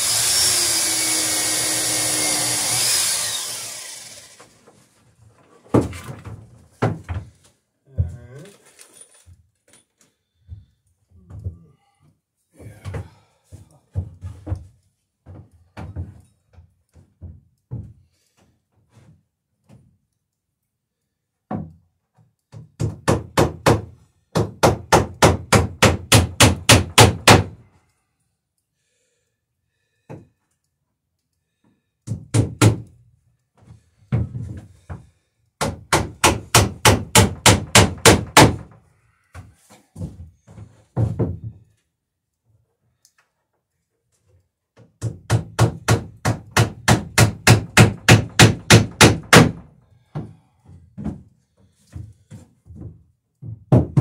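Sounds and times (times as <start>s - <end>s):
hammer driving nails into wood: 22.5s - 27.6s, 32.0s - 33.0s, 35.6s - 38.8s, 44.8s - 50.4s.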